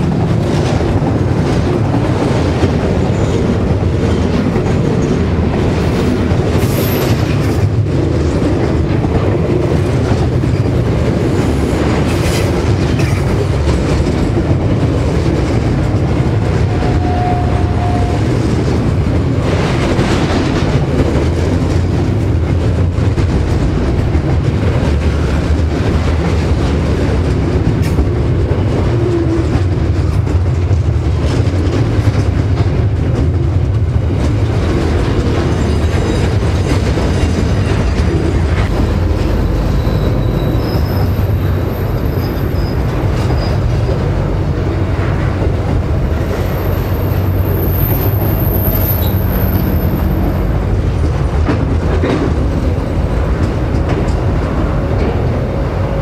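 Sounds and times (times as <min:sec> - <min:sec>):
steel wheels rumbling on rail: 0:00.0 - 0:56.0
high wheel squeal: 0:38.7 - 0:43.7, 0:46.3 - 0:50.5.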